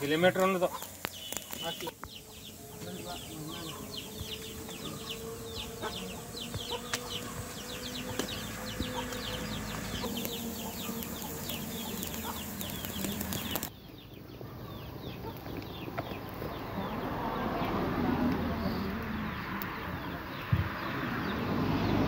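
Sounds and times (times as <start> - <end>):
wood fire crackling and popping: 0.0 - 2.2, 9.1 - 13.8
high bird chirping: 0.0 - 22.0.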